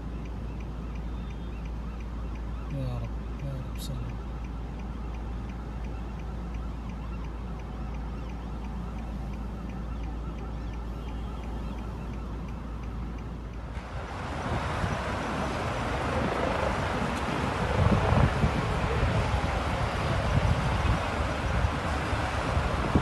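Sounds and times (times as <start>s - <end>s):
distant helicopter hovering: 0.0s - 23.0s
road traffic hum: 0.0s - 23.0s
wind buffeting microphone: 13.8s - 23.0s.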